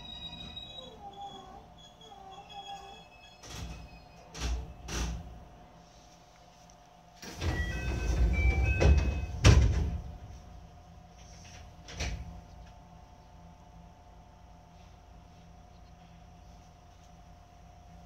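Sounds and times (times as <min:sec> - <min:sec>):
train doors sliding shut: 0:07.2 - 0:10.1
door thud: 0:08.8 - 0:10.1.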